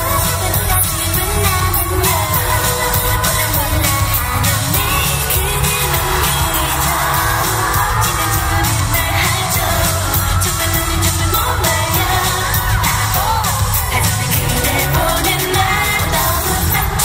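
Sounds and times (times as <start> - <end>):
pop song with singing: 0.0 - 17.0.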